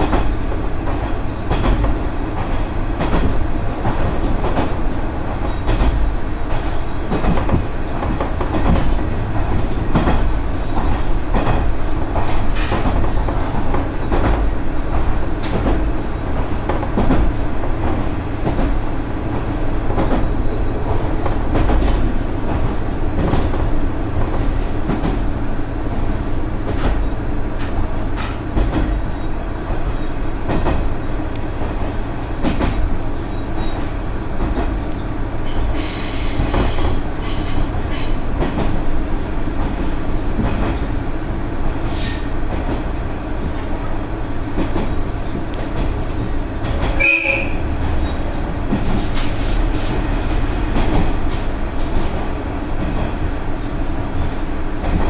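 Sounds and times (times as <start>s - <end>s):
track clacks: 0.0s - 55.0s
train engine and wheels rumbling: 0.0s - 55.0s
high wheel squeal: 35.5s - 38.3s, 47.0s - 48.2s.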